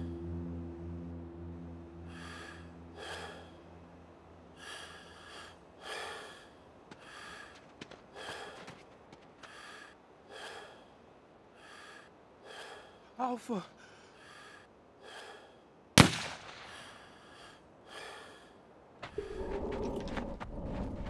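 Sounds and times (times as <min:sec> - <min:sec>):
low droning music tone: 0:00.0 - 0:07.5
person breathing quickly: 0:02.0 - 0:15.9, 0:16.6 - 0:21.0.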